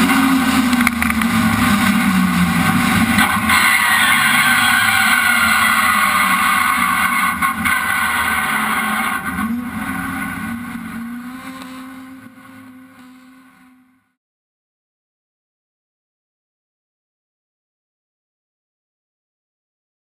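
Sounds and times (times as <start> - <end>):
car engine revving: 0.0 - 14.2.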